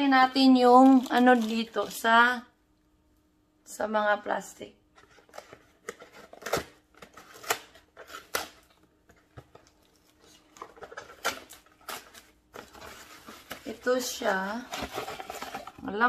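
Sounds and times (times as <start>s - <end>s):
cardboard box tearing: 10.8s - 15.7s.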